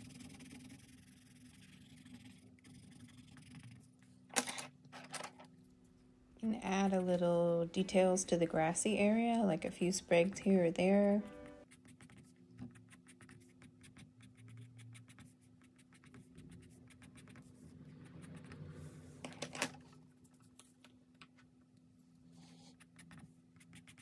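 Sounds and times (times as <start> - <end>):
colored pencil scratching on paper: 0.0 - 4.0, 11.4 - 19.2, 22.3 - 24.0
faint steady hum: 0.0 - 24.0.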